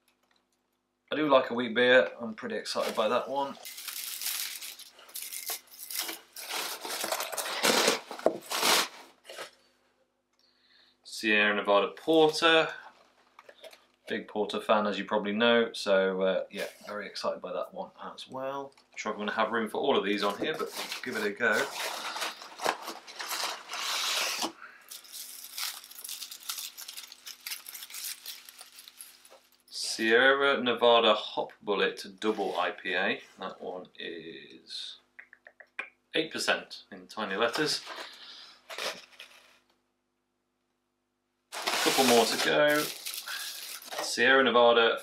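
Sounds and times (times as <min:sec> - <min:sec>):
paper wrapping rustling and tearing: 0:02.8 - 0:09.6, 0:20.2 - 0:29.7, 0:37.4 - 0:39.6, 0:41.5 - 0:44.2.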